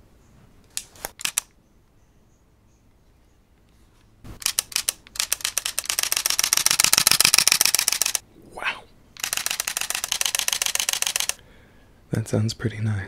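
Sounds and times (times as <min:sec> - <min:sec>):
camera shutter clicks: 0:00.7 - 0:01.6, 0:04.4 - 0:08.2, 0:09.2 - 0:11.4.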